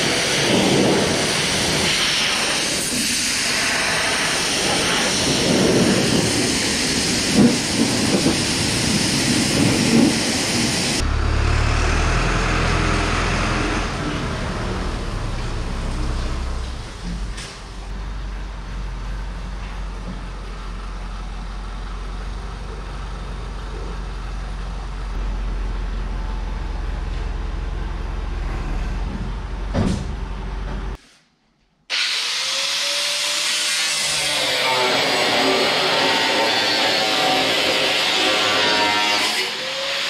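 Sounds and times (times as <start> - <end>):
tractor engine droning: 0.0 - 31.0.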